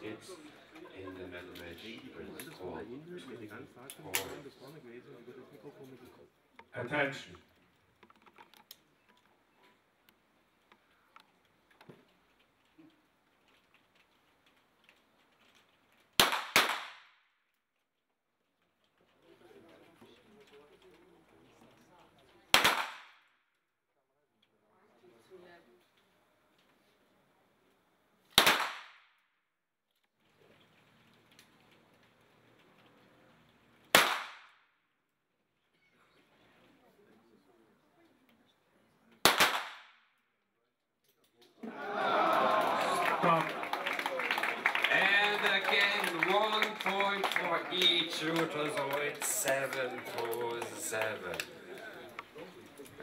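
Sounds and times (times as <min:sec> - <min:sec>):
pistol shots with echo: 0:16.2 - 0:17.1, 0:22.5 - 0:23.2, 0:28.4 - 0:29.0, 0:33.9 - 0:34.6, 0:39.2 - 0:40.0.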